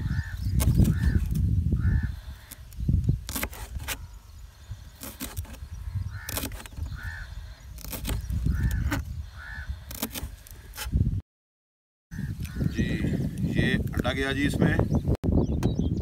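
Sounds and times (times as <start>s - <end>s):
crows cawing: 0.0s - 2.7s, 5.8s - 7.8s, 8.4s - 10.8s, 12.1s - 13.2s.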